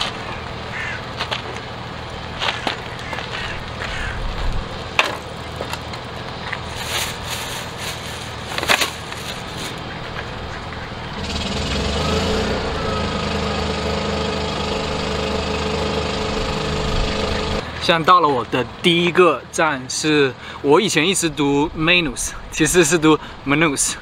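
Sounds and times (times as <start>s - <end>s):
small engine running: 0.3s - 17.7s
plastic bag rustling: 5.5s - 9.8s.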